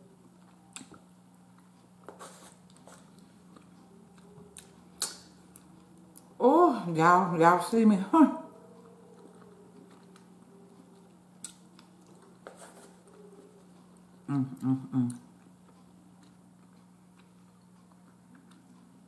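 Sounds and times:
woman chewing food: 0.0s - 6.4s, 8.4s - 19.0s
low electrical hum: 0.0s - 19.0s
woman humming mm sounds: 14.2s - 15.3s.

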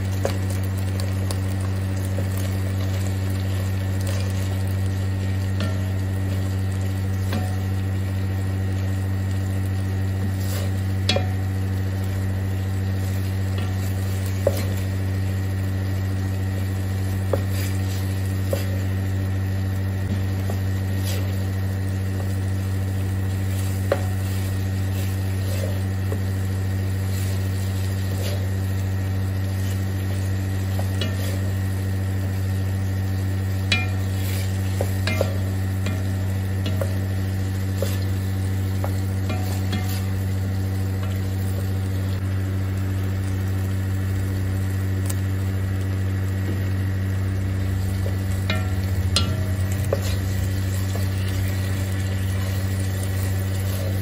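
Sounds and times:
light sizzle: 0.0s - 54.0s
steady low hum: 0.0s - 54.0s
wooden spoon scraping pot: 23.1s - 31.7s, 33.7s - 40.2s, 48.0s - 54.0s.

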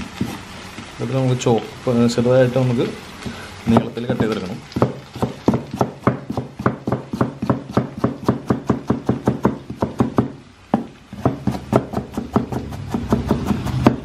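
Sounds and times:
cleaver chopping on wooden board: 4.8s - 14.0s.

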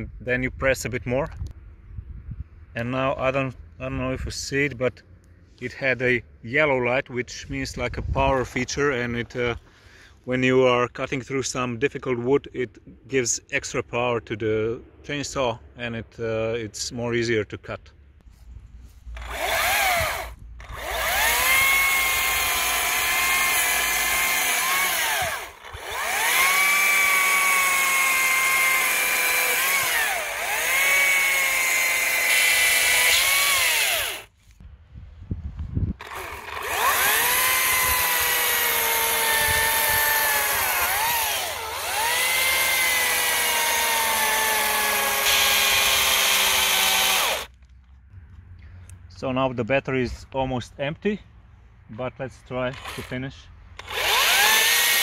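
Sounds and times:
electric chainsaw cutting branches: 19.0s - 34.6s, 36.0s - 47.6s, 52.7s - 53.2s, 53.8s - 55.0s.

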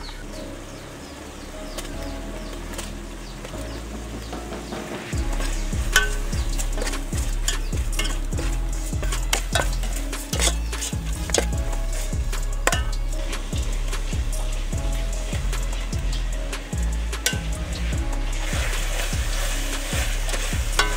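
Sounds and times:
meat sizzling: 5.0s - 20.9s
metal spatula scraping a pot: 5.4s - 16.4s, 17.1s - 20.9s.

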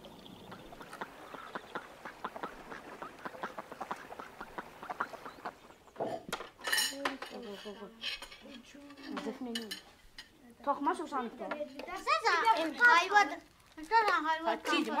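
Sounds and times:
ducks quacking: 0.0s - 6.2s
dishes and cutlery clinking: 6.0s - 10.4s.

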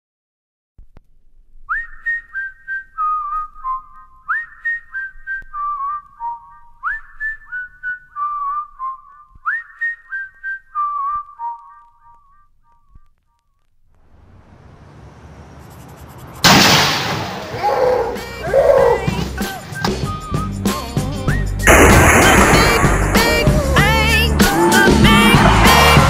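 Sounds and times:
whistle-like tune: 1.7s - 12.5s, 17.7s - 22.8s.

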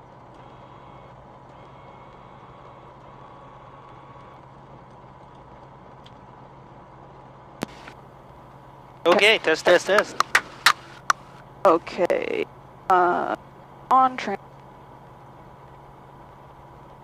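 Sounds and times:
aircraft engine idling: 7.6s - 17.0s
sharp click: 9.8s - 11.2s.

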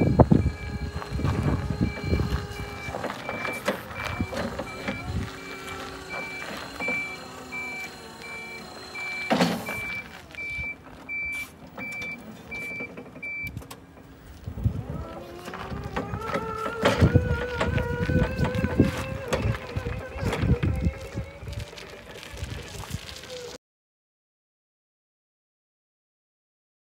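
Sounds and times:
electric motor whine: 0.0s - 10.5s, 14.4s - 23.5s
forklift warning beeper: 0.0s - 13.6s, 15.7s - 21.4s.

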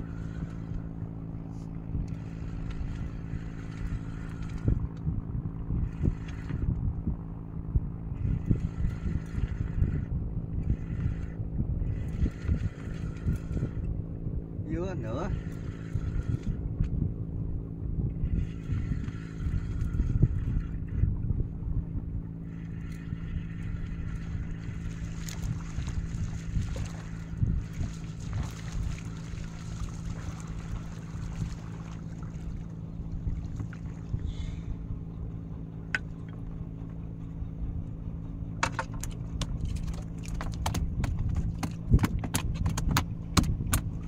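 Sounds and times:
boat engine running: 0.0s - 44.0s
uneven low rumbles: 0.0s - 44.0s
sharp clicks and rattles: 38.6s - 44.0s.

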